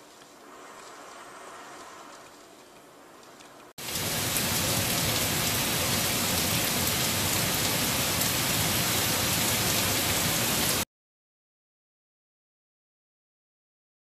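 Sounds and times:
rain falling: 0.0 - 10.8.

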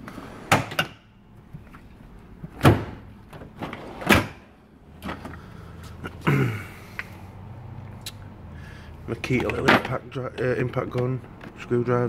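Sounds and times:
metal drawers clunking shut: 0.2 - 1.1, 2.4 - 5.4, 9.3 - 10.2.

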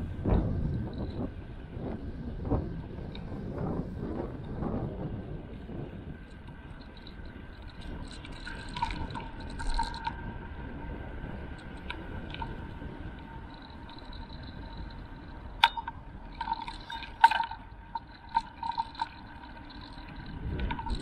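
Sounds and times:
faint whine: 0.0 - 21.0
wind and tyres rumbling on road: 0.0 - 21.0.

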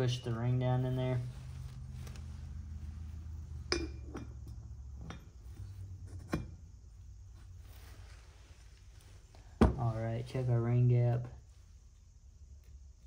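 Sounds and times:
low steady hum: 0.0 - 13.0
light metallic clinks: 3.6 - 5.5.

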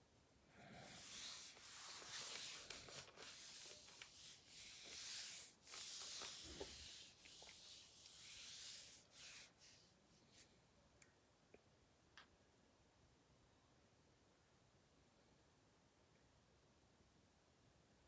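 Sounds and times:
faint scratchy rustling: 0.6 - 10.6.

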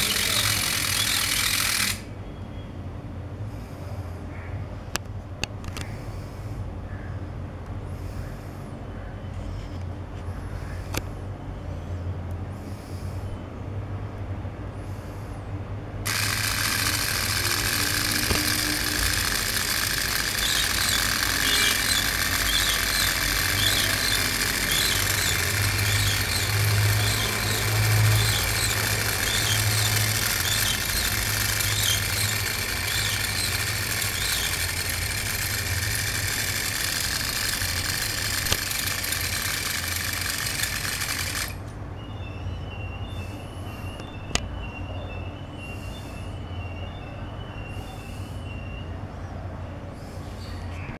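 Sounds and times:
pulleys squeaking: 0.0 - 2.1, 16.1 - 41.6
small electric motor running: 0.0 - 2.1, 16.0 - 41.6.

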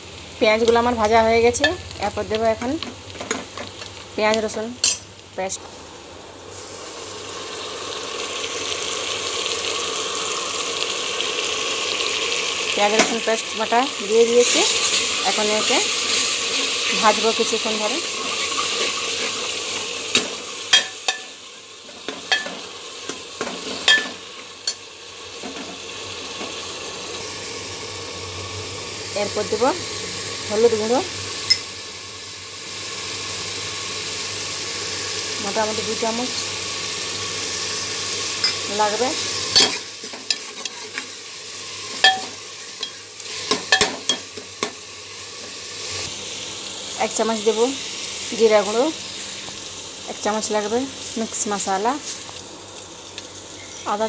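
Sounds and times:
paste sizzling in pot: 0.0 - 54.0
steel ladle clinking against pot: 22.3 - 22.6, 42.0 - 43.0, 43.7 - 44.2
ladle clinking and scraping pot: 23.4 - 24.8, 39.5 - 41.0, 41.9 - 44.7.

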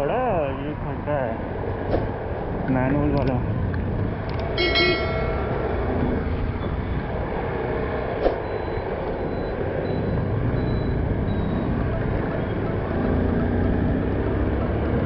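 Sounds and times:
wind rushing over camera: 1.4 - 4.6.

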